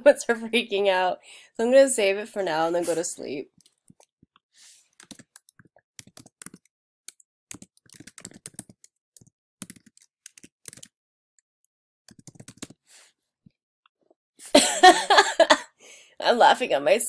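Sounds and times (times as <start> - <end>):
typing on computer keyboard: 5.0 - 10.9, 12.1 - 12.8.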